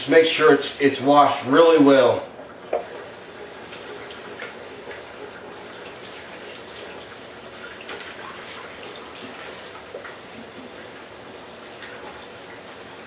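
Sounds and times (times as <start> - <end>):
kitchen tap running: 0.0 - 13.0.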